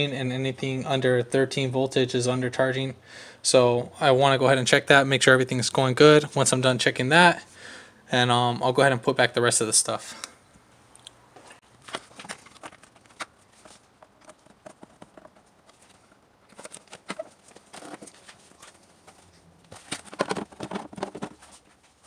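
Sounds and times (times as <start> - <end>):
plastic cover clicks and knocks: 19.8 - 21.4.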